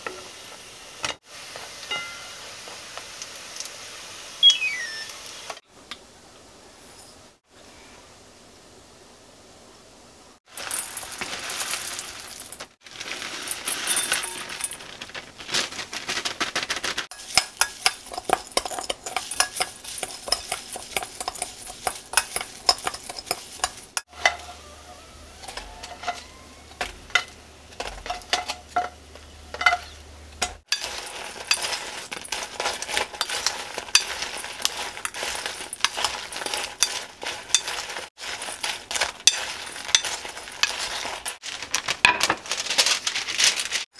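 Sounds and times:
nuts poured into glass bowl: 10.5s - 14.9s, 30.7s - 41.7s
wooden spoon stirring in glass bowl: 17.1s - 24.4s, 30.7s - 41.7s.

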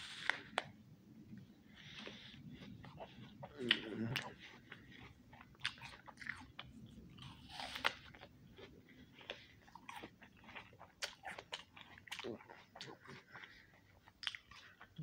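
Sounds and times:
apple crunching: 2.7s - 13.2s.

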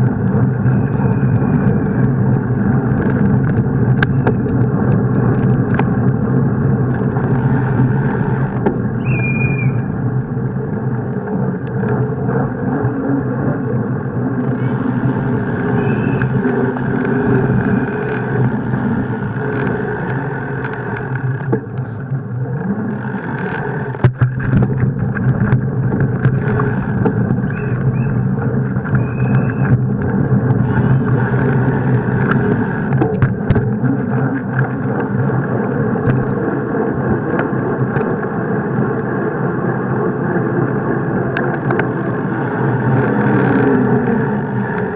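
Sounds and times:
bike rumbling and rattling: 0.0s - 44.9s.

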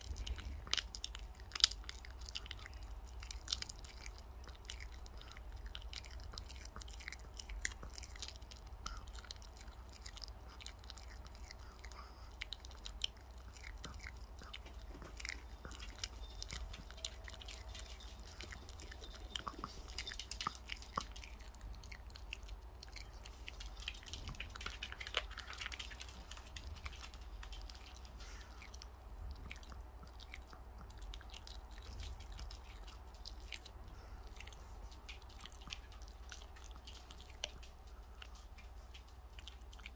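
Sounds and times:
dog chewing raw chicken: 0.0s - 39.9s.

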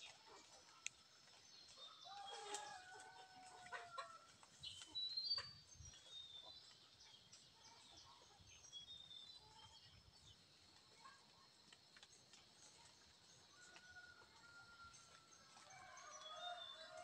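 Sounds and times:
faint clicks: 0.7s - 1.1s.

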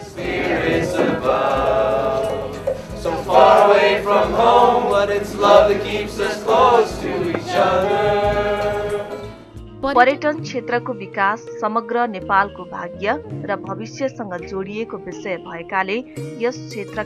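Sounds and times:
group of people singing: 0.0s - 9.4s
strummed acoustic guitar: 0.0s - 9.6s.

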